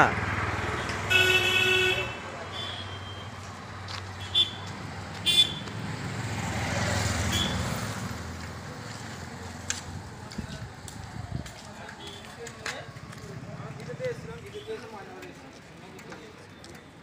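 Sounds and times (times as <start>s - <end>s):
vehicle rumble: 0.0s - 14.6s
street traffic noise: 0.0s - 17.0s
vehicle horn toots: 0.7s - 3.4s, 5.2s - 5.7s, 7.2s - 7.7s.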